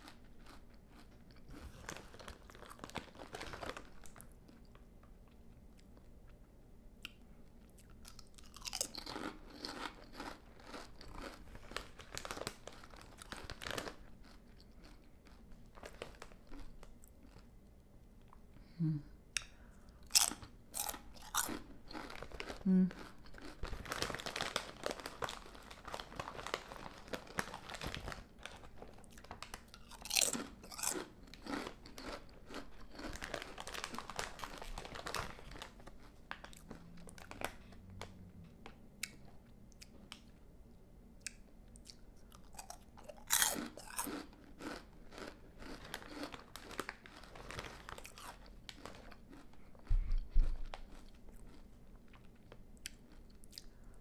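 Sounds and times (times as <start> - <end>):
chips crunching: 0.0 - 4.8, 7.8 - 17.4, 20.1 - 38.1, 41.3 - 49.6, 50.4 - 53.7
chewing: 7.0 - 11.8, 29.0 - 34.6.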